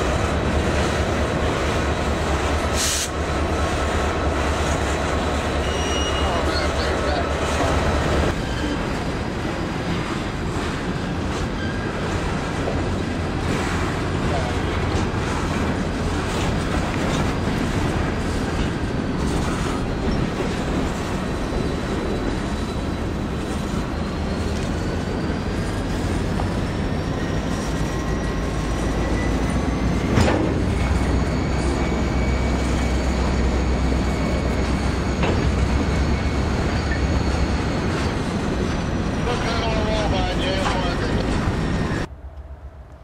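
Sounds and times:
hopper cars rolling: 0.0s - 43.0s
wheels squealing: 3.7s - 9.2s, 13.4s - 42.1s.

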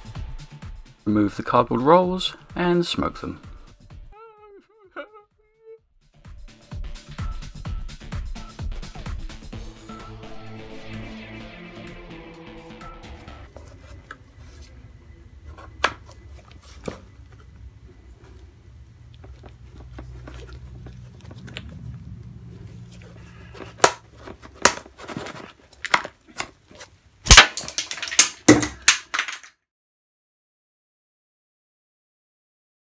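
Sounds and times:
hard plastic clicking and cracking: 27.3s - 29.5s
loud snaps and knocks: 27.3s - 29.5s.

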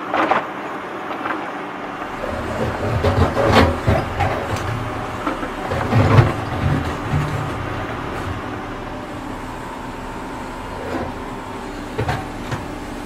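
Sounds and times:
low uneven rumble: 2.0s - 13.0s
toy trucks scraping and knocking: 2.2s - 8.3s.

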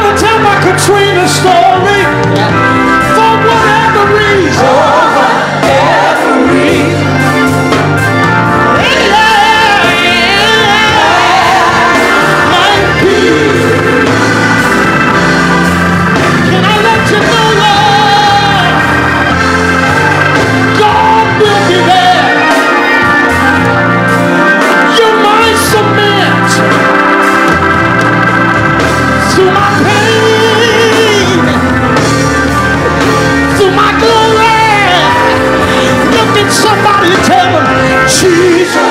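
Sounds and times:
man singing with vibrato: 0.0s - 7.2s, 8.7s - 14.5s, 16.4s - 18.9s, 20.6s - 23.8s, 24.7s - 26.6s, 29.2s - 32.0s, 32.9s - 38.9s
organ accompaniment: 0.0s - 38.9s.

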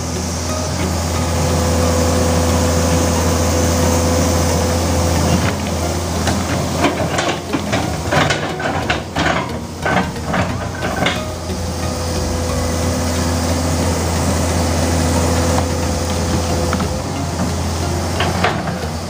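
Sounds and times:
excavator diesel engine running: 0.0s - 19.0s.

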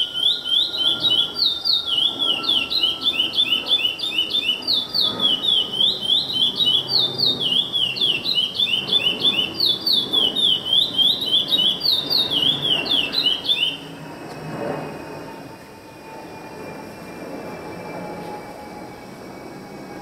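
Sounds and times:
songbird singing: 0.0s - 13.9s.

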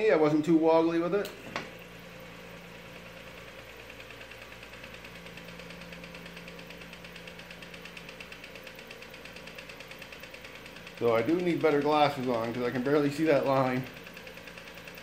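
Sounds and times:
bead roller motor humming: 0.0s - 15.0s
rapid even ticking: 3.3s - 15.0s.

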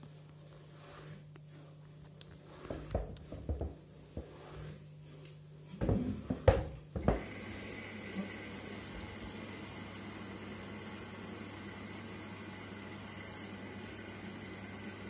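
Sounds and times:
washing machine hum: 0.0s - 15.0s
washing machine whirring with whine: 0.0s - 15.0s
shoes thumping in washing machine: 2.9s - 3.9s, 5.7s - 7.4s.

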